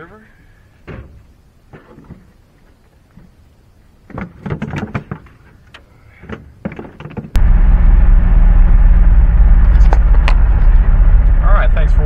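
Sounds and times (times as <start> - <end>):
truck engine and road drone: 7.4 - 12.0.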